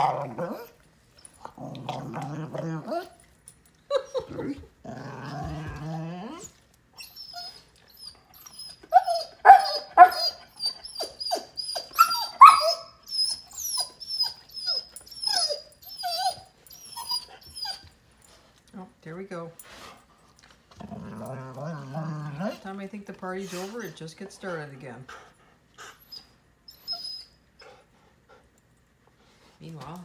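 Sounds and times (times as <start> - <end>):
dog grumbling: 0.0 - 0.8, 1.4 - 3.2, 4.0 - 6.5, 20.7 - 22.8
dog high whine: 0.0 - 18.5, 25.1 - 27.9
dog whimpers and yips: 3.9 - 4.7, 6.3 - 18.0, 25.8 - 27.7.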